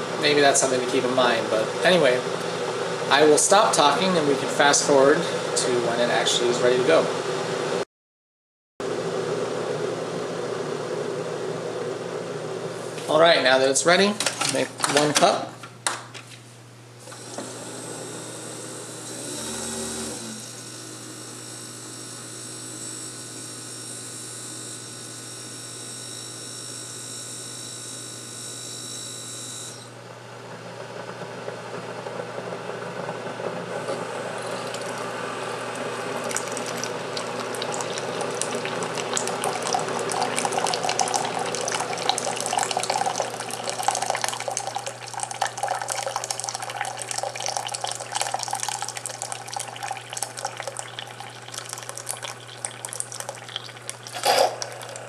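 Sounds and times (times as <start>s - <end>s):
coffee machine hum: 0.0s - 7.8s, 8.8s - 15.4s, 16.9s - 55.0s
water stream into cup: 34.0s - 55.0s.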